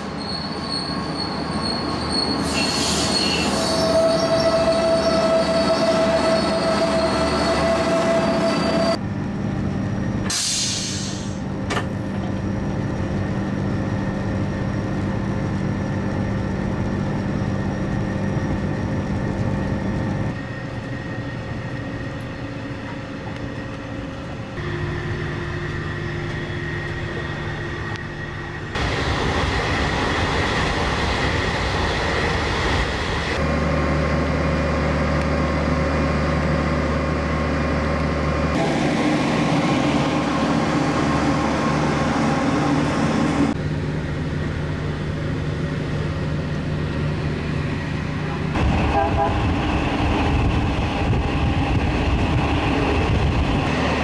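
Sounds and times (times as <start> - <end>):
train wheels squealing: 0.0 - 9.0
train hum and rumble: 0.0 - 54.0.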